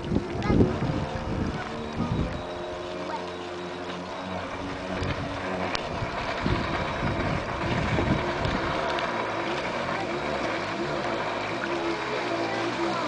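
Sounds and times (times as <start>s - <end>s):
wind buffeting microphone: 0.0s - 3.1s, 4.4s - 10.1s
distant jet ski engine revving: 0.0s - 13.0s.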